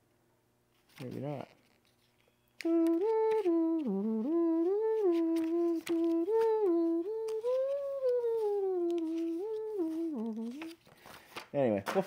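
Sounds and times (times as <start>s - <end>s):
man humming a tune: 2.6s - 10.8s.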